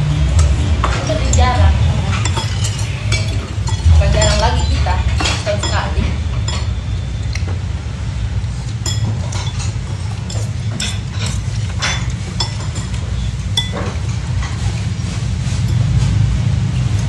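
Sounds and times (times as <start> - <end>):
low hum: 0.0 - 17.0
cutlery clinking against dishes: 0.4 - 7.5, 8.7 - 14.7.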